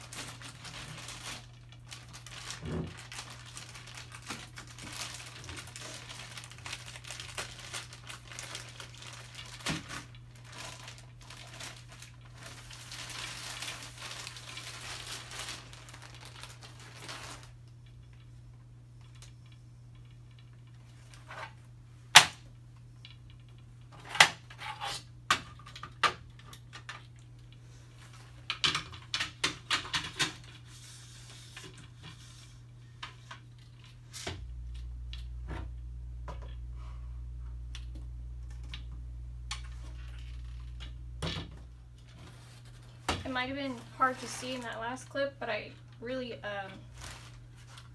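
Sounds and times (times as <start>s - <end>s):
plastic wrap crinkling: 0.0s - 18.2s, 37.7s - 47.9s.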